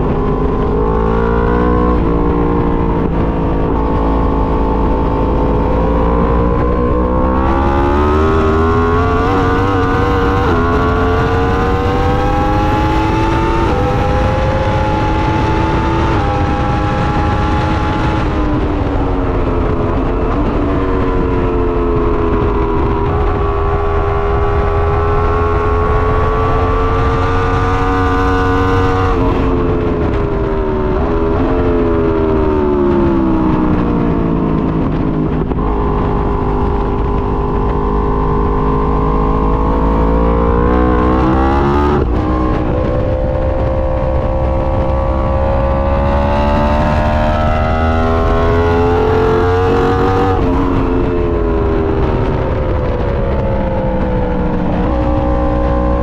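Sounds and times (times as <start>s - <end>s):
steady low rumble: 0.0s - 56.0s
vehicle engine running: 18.2s - 56.0s.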